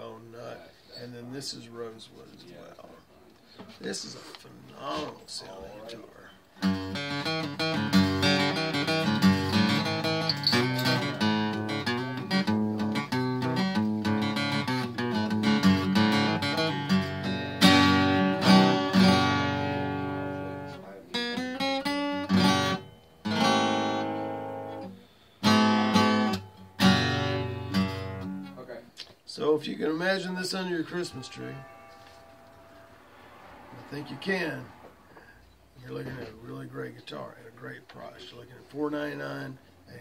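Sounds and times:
acoustic guitar playing: 6.4s - 28.9s, 29.7s - 36.9s.

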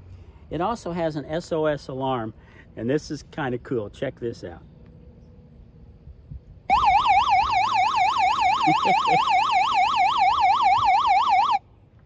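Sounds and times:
warbling electronic siren: 6.6s - 11.6s.

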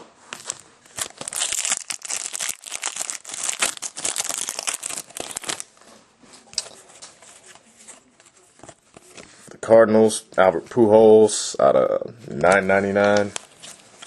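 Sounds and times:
plastic wrapper crinkling: 0.3s - 5.7s.

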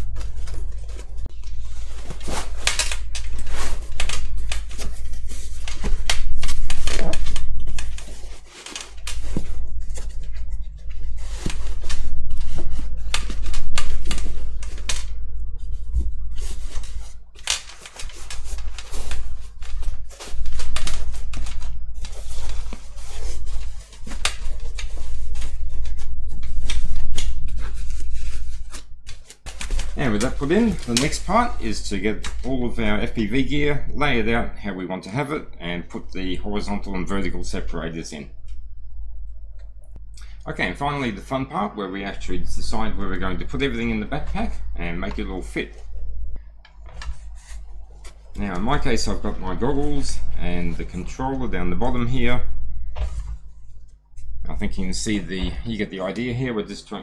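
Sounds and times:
foam and fabric rustling: 0.0s - 34.3s.

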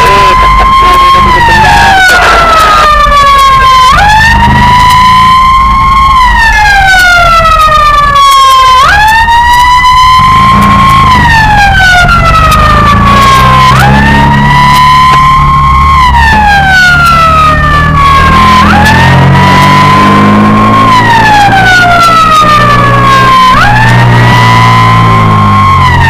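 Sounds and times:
low engine rumble: 0.0s - 8.2s
fire engine siren wailing: 0.0s - 26.0s.

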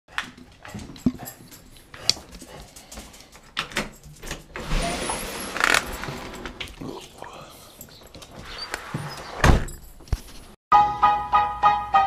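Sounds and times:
door scraping open: 4.5s - 6.8s, 8.3s - 9.8s.

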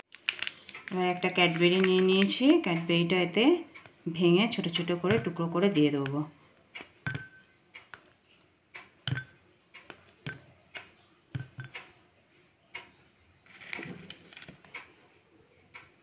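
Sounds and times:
chocolate bar snapping: 0.1s - 1.0s.

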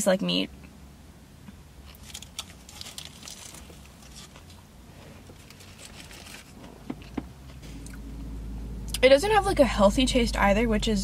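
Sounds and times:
paper wrapper crinkling: 1.9s - 4.6s, 5.4s - 6.6s.

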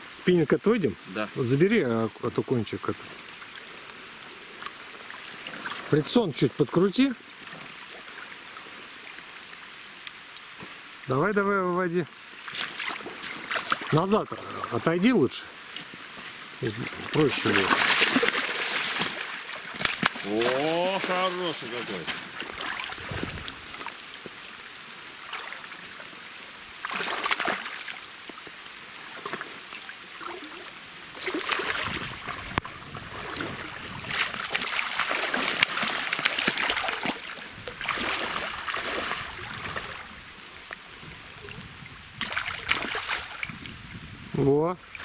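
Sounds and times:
shallow river water flowing: 0.0s - 45.0s
splashing in shallows: 16.8s - 23.8s, 31.2s - 40.1s, 42.2s - 43.6s.

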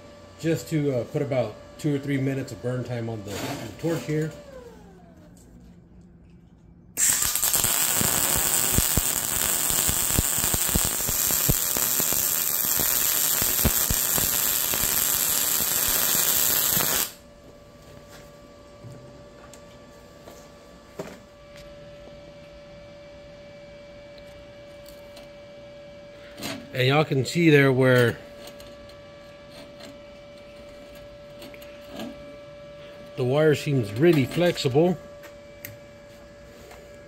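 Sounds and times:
steady hum: 0.0s - 37.0s
welding arc crackling: 7.0s - 17.2s.

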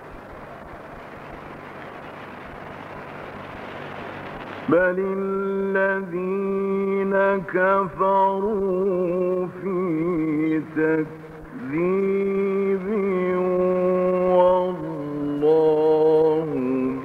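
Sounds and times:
steady hiss: 0.0s - 17.0s
man reciting melodically: 4.7s - 17.0s.

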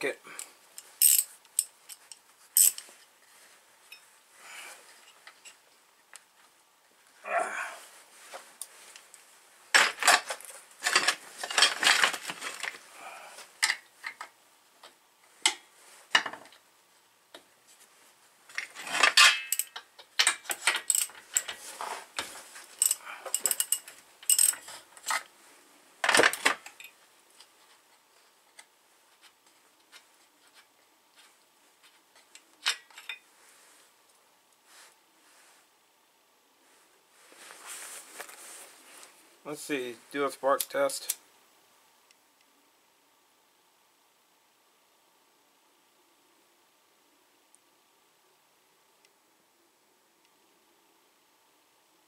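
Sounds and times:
tools clinking on metal: 1.0s - 1.7s, 18.9s - 21.6s, 22.8s - 25.2s.

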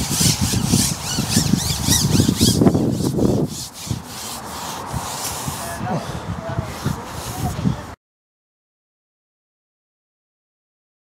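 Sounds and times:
fishing pole sliding and rubbing: 0.0s - 7.7s.

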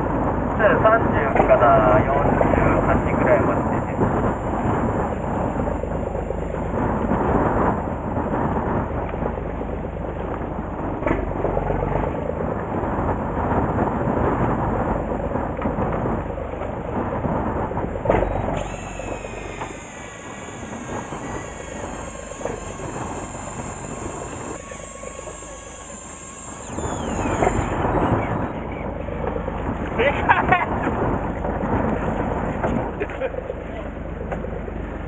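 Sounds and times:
wind buffeting microphone: 0.0s - 33.0s
boat running at sea: 0.0s - 35.0s
high whine sliding down: 1.0s - 8.1s, 17.7s - 29.3s.

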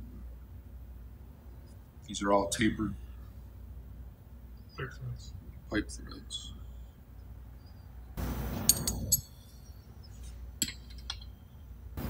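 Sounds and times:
metal tools clinking: 8.5s - 11.6s.

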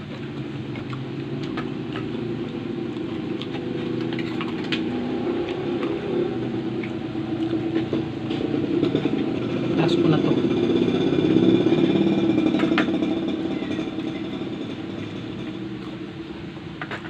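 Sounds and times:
crisp crunches of chewing: 0.0s - 9.0s
engine idling: 0.0s - 17.0s.

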